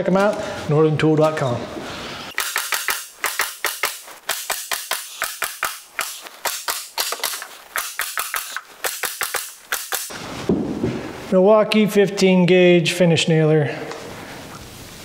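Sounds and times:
nail gun shots into wood: 2.3 - 10.1.

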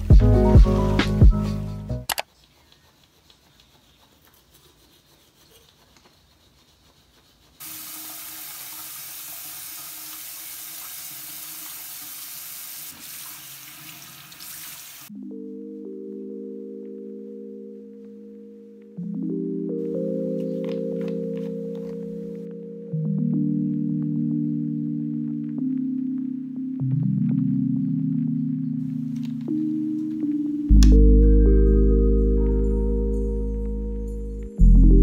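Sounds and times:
soft mallet keyboard music: 0.0 - 2.1, 15.1 - 35.0
tap running water into sink: 7.6 - 15.1.

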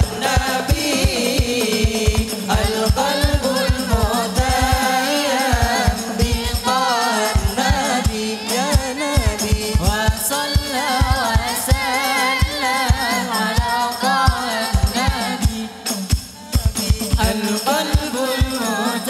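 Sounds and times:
frame drums booming: 0.0 - 5.0
men singing devotional melody: 0.0 - 19.0.

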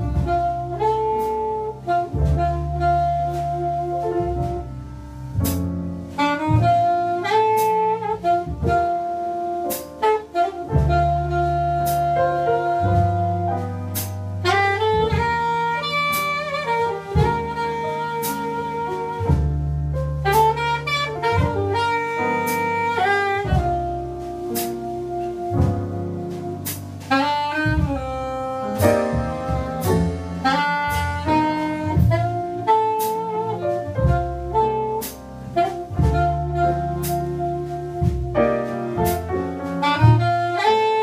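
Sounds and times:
saxophone melody: 0.0 - 5.4, 6.1 - 41.0
drum and cymbal hits: 0.0 - 41.0
low bass notes: 0.0 - 41.0.

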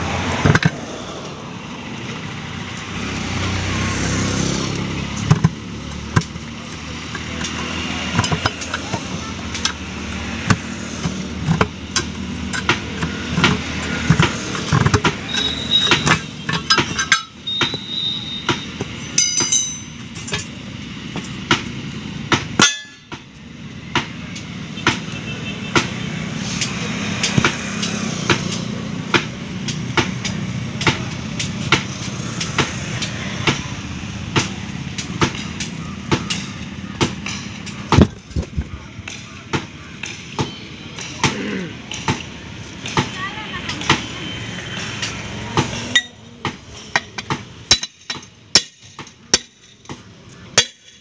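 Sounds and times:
metal-on-metal clanks: 5.1 - 25.1, 26.6 - 44.1, 44.7 - 51.0.

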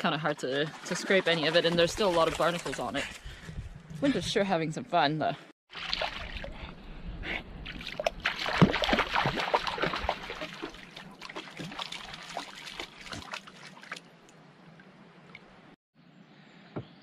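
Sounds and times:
dog wading splashes: 7.8 - 14.1.

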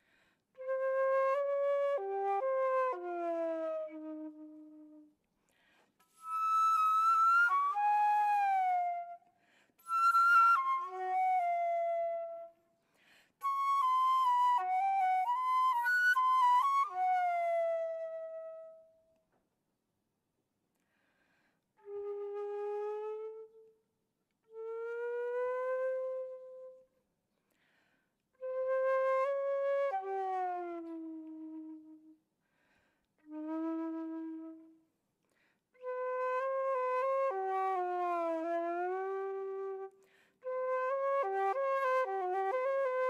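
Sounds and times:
flute playing long notes: 0.6 - 5.1, 6.1 - 12.6, 13.4 - 18.9, 33.3 - 34.8, 35.8 - 43.0.

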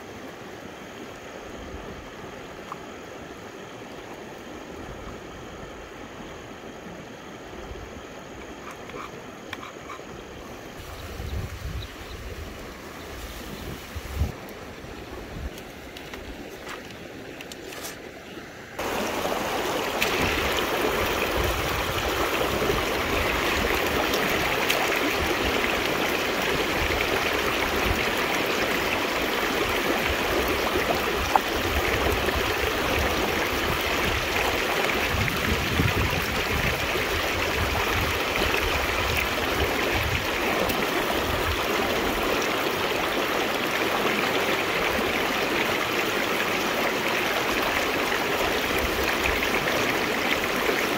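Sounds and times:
river water running: 0.0 - 50.9.

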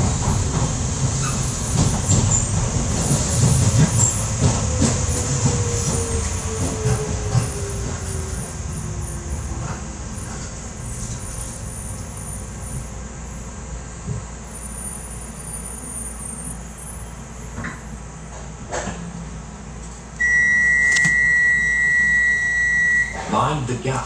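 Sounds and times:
train low hum: 0.0 - 24.0
door warning tone: 20.2 - 23.4.

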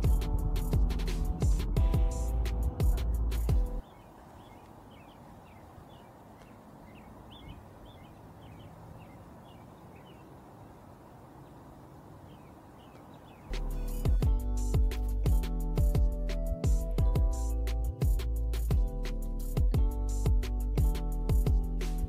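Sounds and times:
birds chirping: 0.0 - 16.2.

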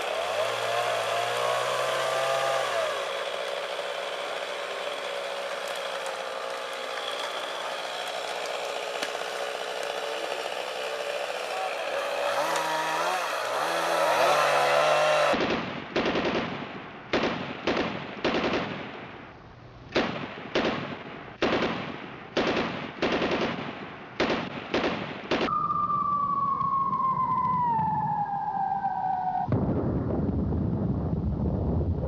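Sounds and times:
echoing gunshots: 15.3 - 19.3, 19.9 - 25.6
falling whistle: 25.5 - 29.5
low explosion rumble: 25.5 - 32.0.

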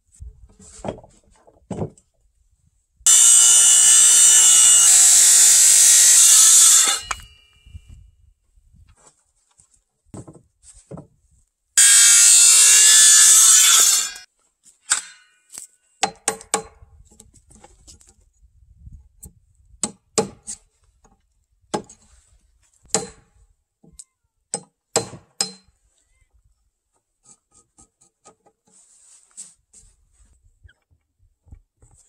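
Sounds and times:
circular saw cutting wood: 3.1 - 7.4, 11.8 - 14.3
hammer striking chisel: 22.9 - 23.2, 24.5 - 25.7.

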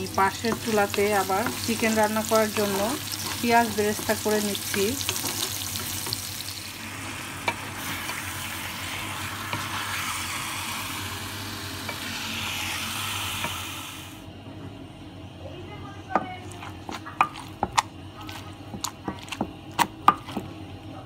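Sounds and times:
stirring in a pan: 0.0 - 10.7, 16.1 - 20.9
onions sizzling in oil: 0.0 - 14.2.

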